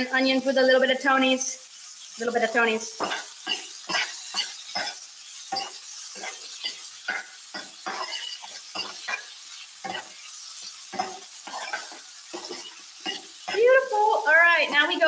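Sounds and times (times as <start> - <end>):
vegetables sizzling in oil: 0.0 - 15.0
metal spoon scraping a skillet: 2.8 - 13.8.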